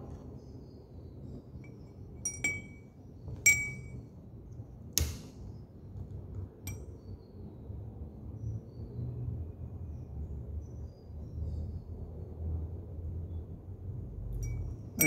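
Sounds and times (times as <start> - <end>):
glass beaker clinks: 2.2 - 2.8, 3.5 - 4.0, 14.4 - 15.0
sharp click: 5.0 - 5.4.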